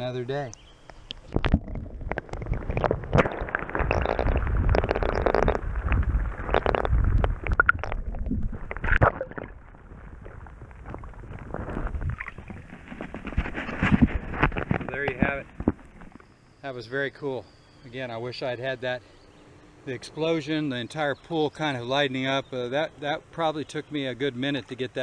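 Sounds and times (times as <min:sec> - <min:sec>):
underwater sloshing and gurgling: 0:01.0 - 0:16.5.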